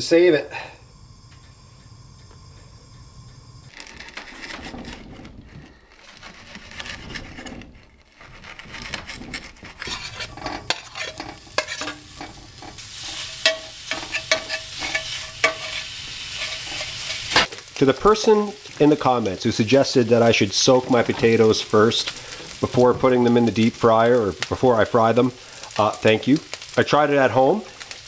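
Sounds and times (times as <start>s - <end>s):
metal spoon scraping a pan: 3.8s - 17.5s
sausage sizzling in a skillet: 9.9s - 28.0s.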